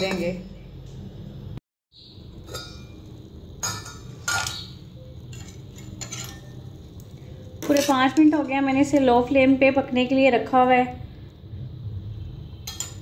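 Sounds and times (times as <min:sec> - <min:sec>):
metal clinking against saucepan: 0:02.4 - 0:06.7, 0:12.6 - 0:13.0.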